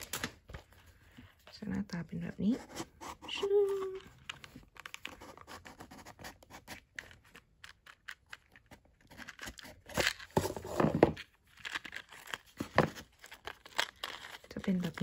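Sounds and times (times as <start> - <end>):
scraping and rustling of card: 2.3 - 15.0
cardboard box rustling: 9.2 - 11.2.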